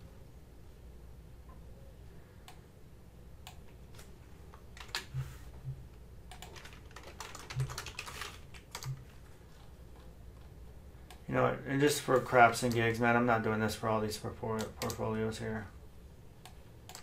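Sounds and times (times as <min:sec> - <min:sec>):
computer keyboard typing: 0:04.6 - 0:05.2, 0:06.3 - 0:09.2, 0:12.1 - 0:13.0, 0:14.5 - 0:15.2.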